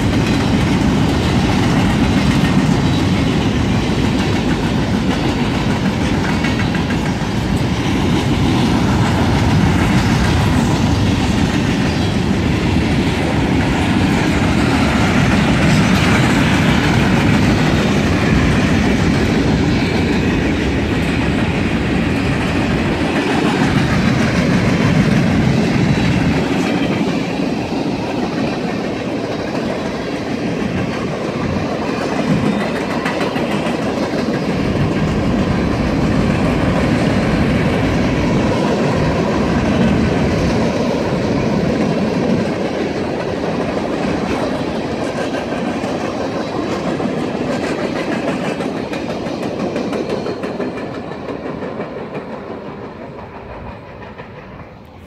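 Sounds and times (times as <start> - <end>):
steel wheels on rails: 0.0 - 55.0.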